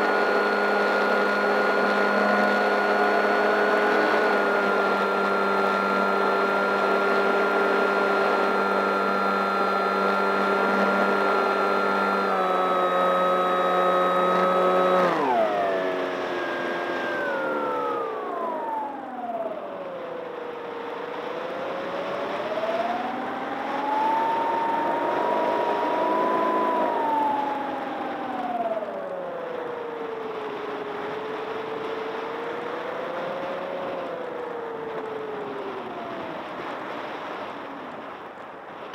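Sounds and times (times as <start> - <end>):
electric motor and propeller whine: 0.0 - 38.9.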